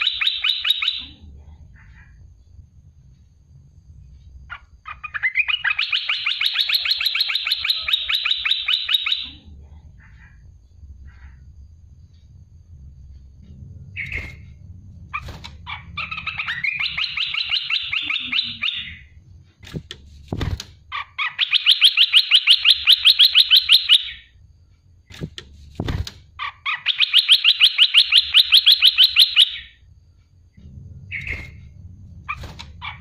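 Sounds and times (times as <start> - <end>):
bird singing rapid trills: 4.5 - 9.4, 15.2 - 19.1, 20.9 - 24.3, 26.4 - 29.8.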